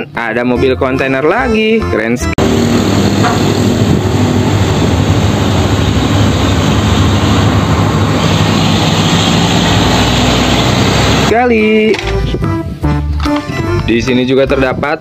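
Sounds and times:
truck diesel engine passing: 2.4 - 11.4.

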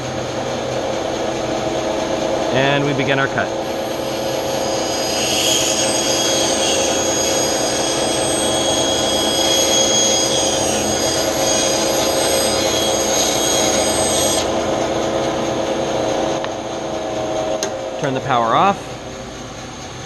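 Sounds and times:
bandsaw motor hum: 0.0 - 20.0
saw blade cutting wood: 3.1 - 15.0.

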